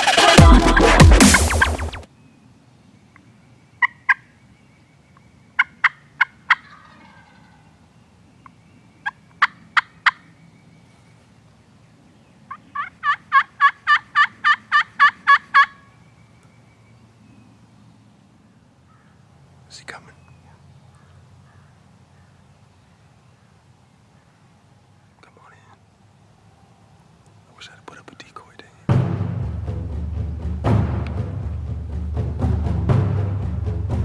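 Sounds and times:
background music: 0:00.0 - 0:02.1, 0:28.9 - 0:34.0
turkey yelping: 0:03.8 - 0:04.3, 0:05.6 - 0:07.7, 0:09.0 - 0:10.3, 0:12.5 - 0:15.9.

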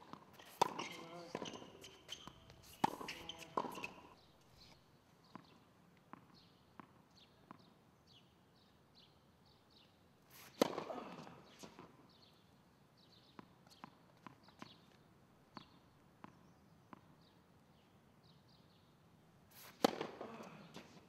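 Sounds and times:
racket striking ball: 0:00.0 - 0:04.1, 0:10.6 - 0:11.9, 0:19.6 - 0:21.0
tennis ball bouncing on hard court: 0:00.0 - 0:04.2, 0:05.3 - 0:07.7, 0:10.4 - 0:12.3, 0:13.1 - 0:17.3, 0:19.6 - 0:21.0.

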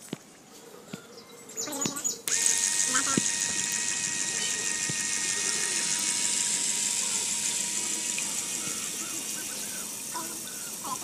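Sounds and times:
model boat motor hissing and whining: 0:02.2 - 0:11.0.

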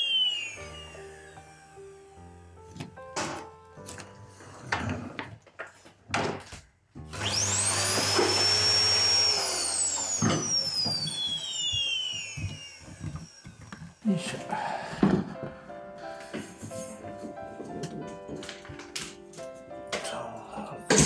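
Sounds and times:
vacuum cleaner motor whine: 0:00.0 - 0:03.5, 0:07.0 - 0:18.3.

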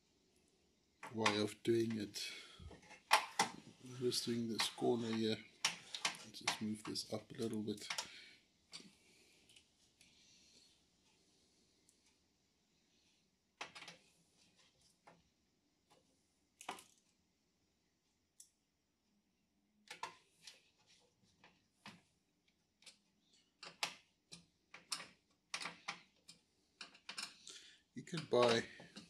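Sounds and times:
plastic parts clicking: 0:04.5 - 0:08.9, 0:13.6 - 0:14.0, 0:19.8 - 0:20.5, 0:22.8 - 0:27.5, 0:28.1 - 0:29.0.

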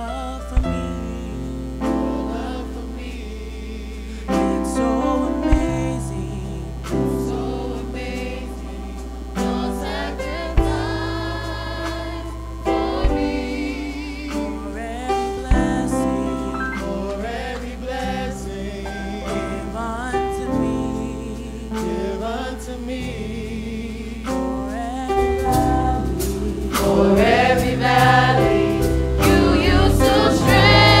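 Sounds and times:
gospel choir singing: 0:00.0 - 0:31.0
steady bass: 0:00.6 - 0:31.0
sustained instrumental chords: 0:00.6 - 0:31.0.

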